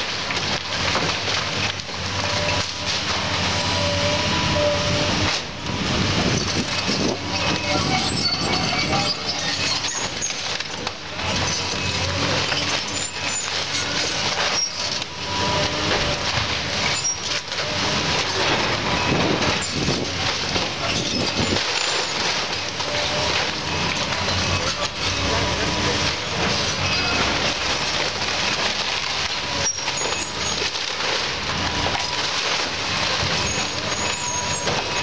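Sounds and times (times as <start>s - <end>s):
debris crashing down: 0.0s - 35.0s
excavator engine running: 0.0s - 35.0s
timber cracking and creaking: 0.0s - 35.0s.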